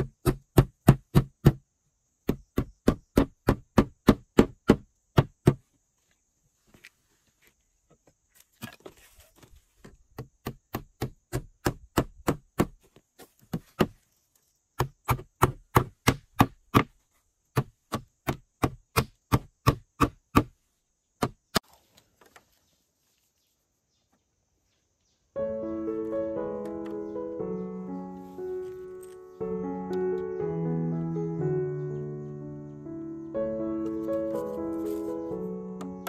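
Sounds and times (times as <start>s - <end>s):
background music: 25.4s - 36.0s.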